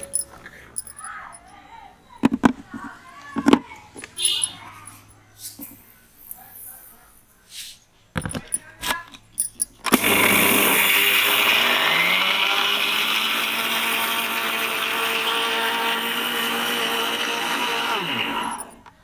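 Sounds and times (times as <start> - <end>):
mixer grinder motor running: 9.9 - 18.8.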